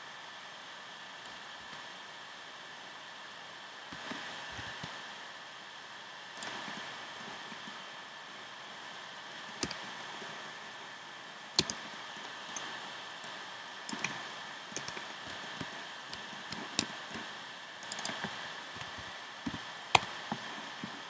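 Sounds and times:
steady background hiss: 0.0 - 21.0
computer mouse and keyboard clicks: 3.9 - 5.0, 6.4 - 7.8, 9.3 - 10.8, 11.5 - 21.0.

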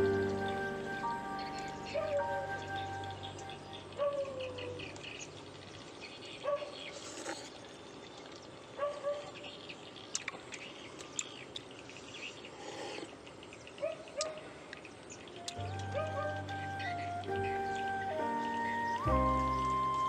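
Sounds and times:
birds chirping: 0.0 - 7.0, 8.2 - 20.0.

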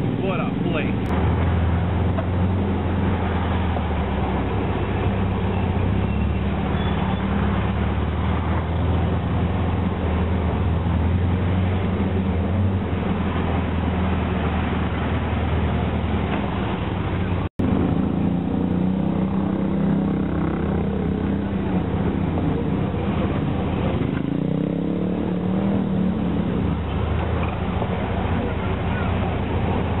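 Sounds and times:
road noise hiss: 0.0 - 19.6
buggy engine droning: 0.0 - 30.0.

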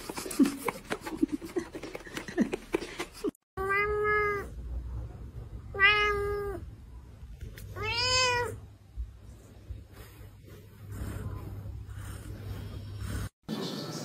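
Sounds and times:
cat meowing: 3.6 - 4.5, 5.7 - 6.6, 7.6 - 8.6.

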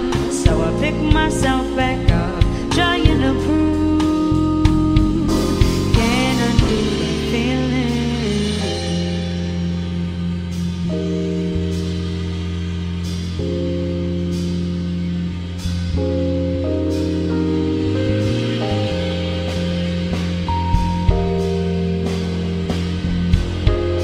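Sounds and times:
held bass note: 0.0 - 24.0
sustained keyboard chords: 0.0 - 24.0
cymbal strikes: 16.8 - 24.0
drum hits: 17.0 - 24.0.

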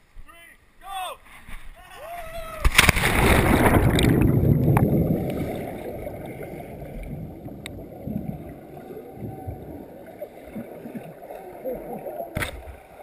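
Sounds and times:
quiet low underwater wash: 2.7 - 13.0
muffled underwater rumble: 3.4 - 13.0
faint clicks: 7.6 - 7.8.

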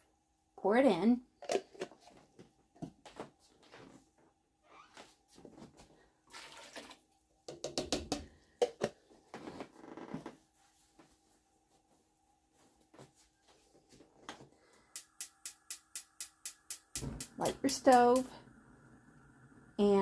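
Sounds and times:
liquid pouring into pot: 6.3 - 7.0.

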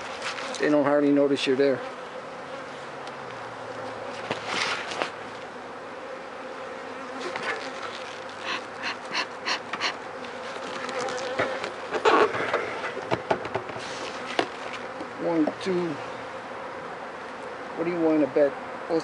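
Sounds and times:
honeybees buzzing: 0.0 - 19.0
bee smoker bellows puffs: 7.1 - 16.2.

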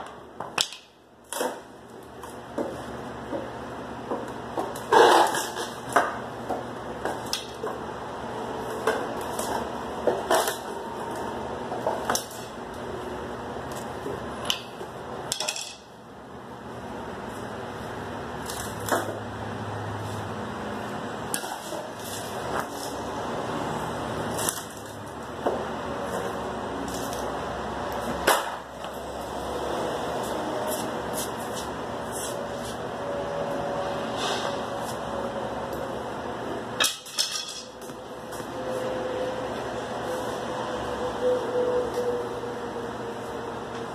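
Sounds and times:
shop background noise: 0.0 - 43.9
hand tools clinking on metal: 36.8 - 37.8.

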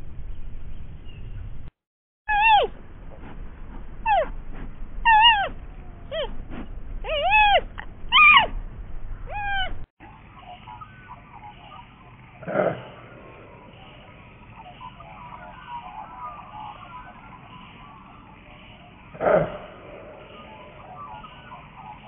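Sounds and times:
animal calls rising and falling: 2.3 - 2.7, 7.0 - 8.6, 9.3 - 22.0.

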